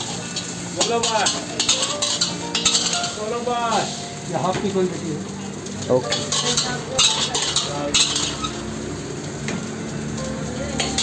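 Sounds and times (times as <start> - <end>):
metal ladle scraping a wok: 0.0 - 3.2, 6.1 - 8.7
rice sizzling: 0.0 - 11.0.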